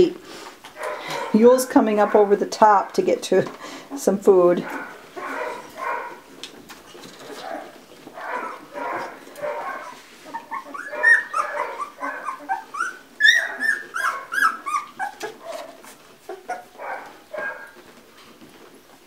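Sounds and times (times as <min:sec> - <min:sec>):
puppies whimpering and squealing: 0:07.0 - 0:17.8.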